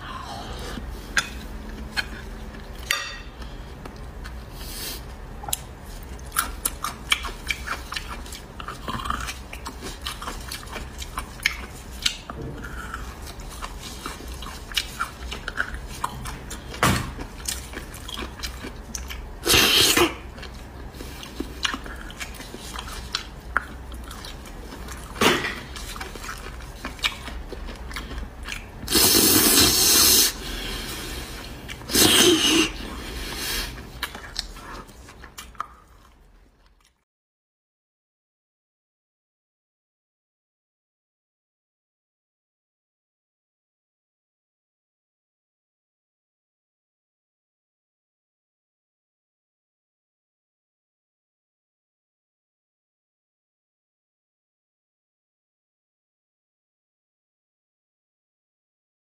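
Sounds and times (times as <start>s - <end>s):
wet chewing: 5.5s - 29.0s, 31.6s - 37.0s
loud slurps: 28.9s - 31.3s, 31.9s - 33.8s.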